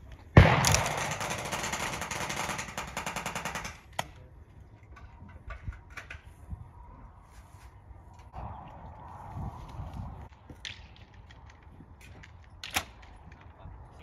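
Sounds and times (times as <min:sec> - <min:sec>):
airsoft gun shots: 0:00.4 - 0:02.5.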